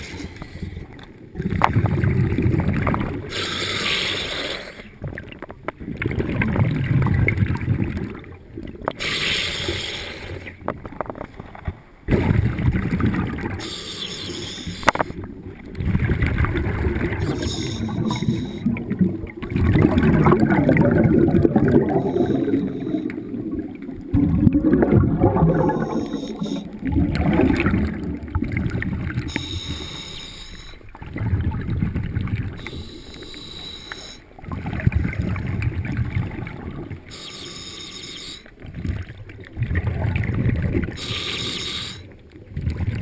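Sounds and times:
exhaled bubbles gurgling: 0:00.0 - 0:43.0
diver breathing through regulator: 0:03.3 - 0:05.0, 0:09.0 - 0:10.6, 0:13.6 - 0:15.2, 0:17.2 - 0:18.8, 0:21.8 - 0:23.3, 0:25.5 - 0:26.8, 0:29.3 - 0:30.9, 0:32.6 - 0:34.3, 0:37.1 - 0:38.6, 0:41.0 - 0:42.2.

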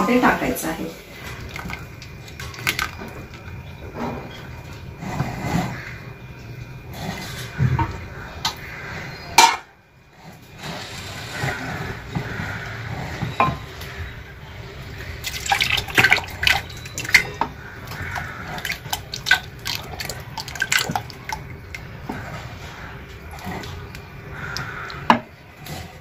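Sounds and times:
liquid splashing in pot: 0:01.2 - 0:03.6, 0:15.0 - 0:25.3.

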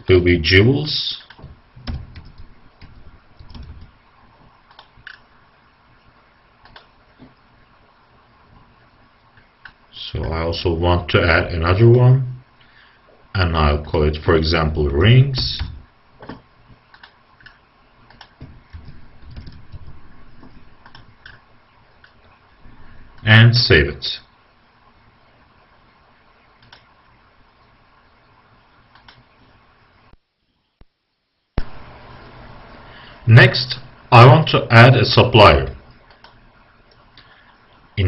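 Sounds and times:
computer mouse clicks: 0:01.3 - 0:03.9, 0:04.6 - 0:05.3, 0:06.6 - 0:07.3, 0:16.2 - 0:21.4, 0:26.6 - 0:26.9, 0:28.9 - 0:29.2, 0:36.1 - 0:37.3.

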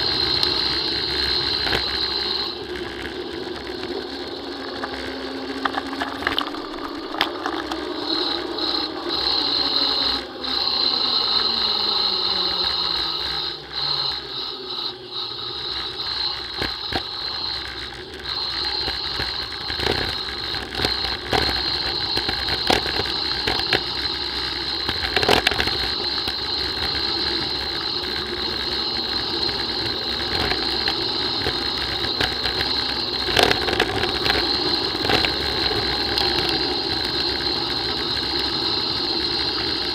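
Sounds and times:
bicycle freehub ticking: 0:00.0 - 0:39.9
bike rattling over bumps: 0:16.4 - 0:39.9.

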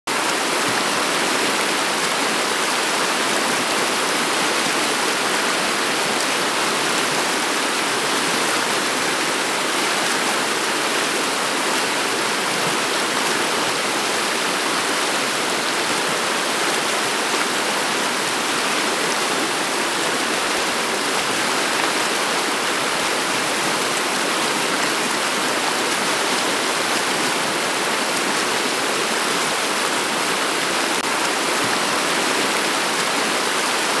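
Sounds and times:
river water flowing over pebbles: 0:00.1 - 0:34.0.

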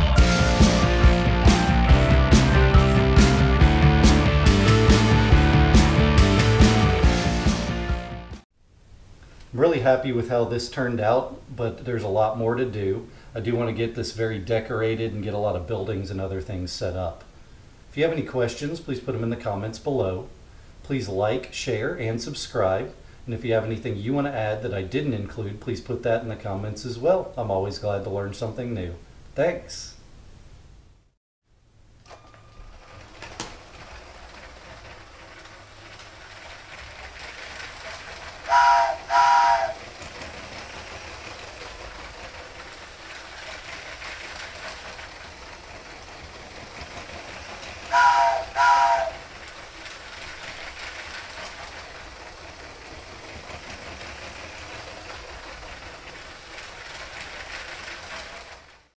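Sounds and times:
toy train motor whirring: 0:32.1 - 0:58.9
train horn blasts: 0:38.4 - 0:39.8, 0:47.9 - 0:49.3.

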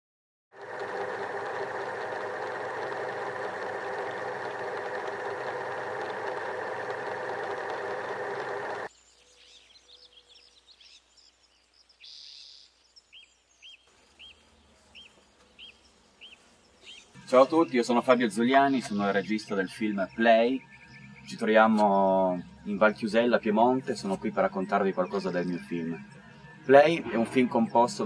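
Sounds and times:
loud mechanical whirring: 0:00.6 - 0:08.9
outdoor ambience: 0:00.6 - 0:28.0
bird chirping: 0:08.9 - 0:21.8.

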